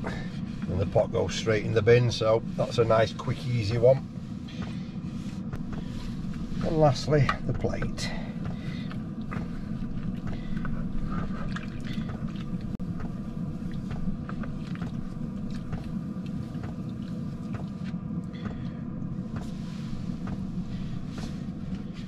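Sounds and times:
low hum: 0:00.0 - 0:22.0
water sloshing in plastic bowl: 0:08.8 - 0:12.8
water dripping: 0:11.4 - 0:12.8.

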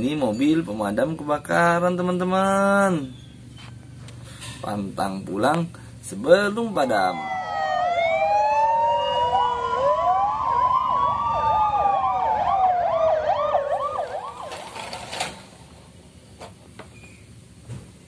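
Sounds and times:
fire engine sirens wailing: 0:06.7 - 0:15.2
fast siren yelp: 0:06.9 - 0:14.8.

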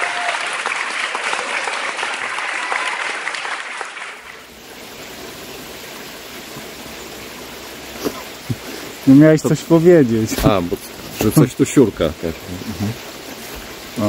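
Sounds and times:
crowd applause: 0:00.0 - 0:04.4
steady outdoor hiss: 0:00.0 - 0:14.0.

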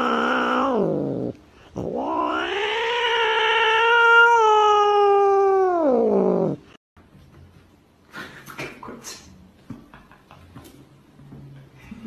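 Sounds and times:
cat yowling: 0:00.0 - 0:06.6.

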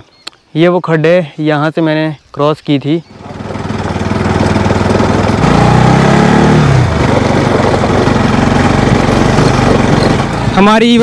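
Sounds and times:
motorcycle engine running: 0:03.0 - 0:11.0.

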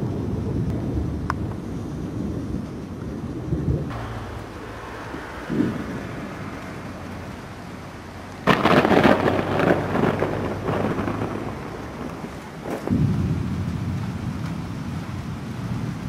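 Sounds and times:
thunder cracks and rumbles: 0:00.0 - 0:07.5, 0:08.4 - 0:16.0
heavy rain hissing: 0:00.0 - 0:16.0.

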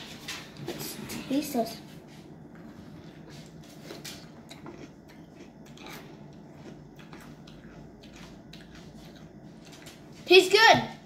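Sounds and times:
crunchy chewing: 0:02.5 - 0:10.2.

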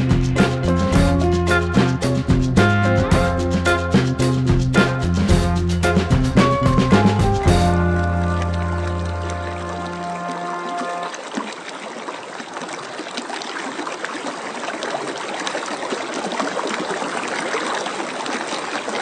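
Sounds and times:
music: 0:00.0 - 0:11.1
running water trickling: 0:05.8 - 0:19.0.

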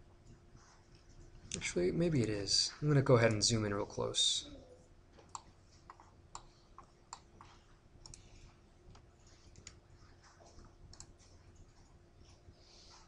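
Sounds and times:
low room hum: 0:00.0 - 0:13.0
computer mouse clicks: 0:05.2 - 0:09.8, 0:10.6 - 0:11.4.

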